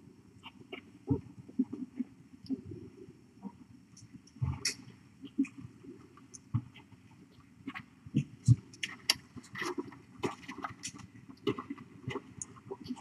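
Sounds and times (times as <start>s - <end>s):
scratchy claw clicks and rustles: 7.7s - 13.0s.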